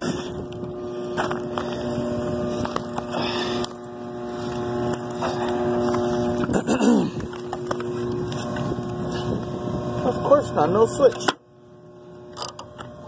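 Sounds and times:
exhaust fan motor humming: 0.0s - 13.0s.

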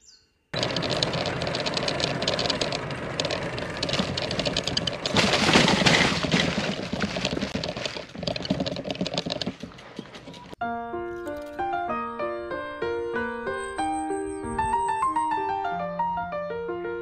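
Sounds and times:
bicycle tyres on rough pavement: 0.6s - 10.6s
rattling and clicking: 0.6s - 10.6s.

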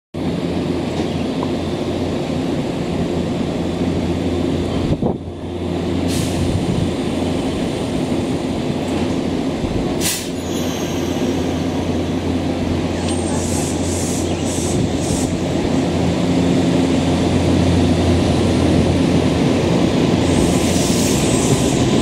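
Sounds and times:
electric train humming: 0.2s - 22.0s
air hissing: 10.0s - 11.3s.

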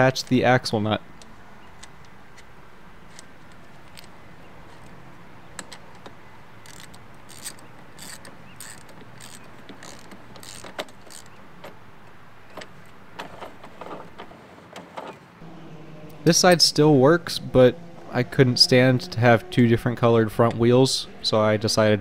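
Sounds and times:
socket wrench clicking: 5.6s - 11.8s
faint steady hum: 15.4s - 22.0s.

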